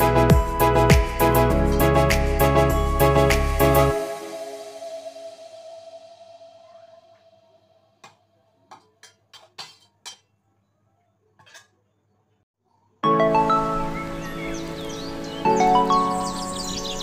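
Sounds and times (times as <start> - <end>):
music: 0.0 - 8.2, 13.0 - 17.0.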